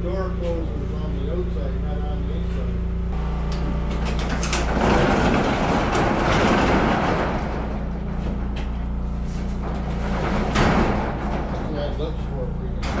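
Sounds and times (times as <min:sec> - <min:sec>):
steady low hum: 0:00.0 - 0:13.0
metal roll-up door rattling: 0:03.8 - 0:13.0.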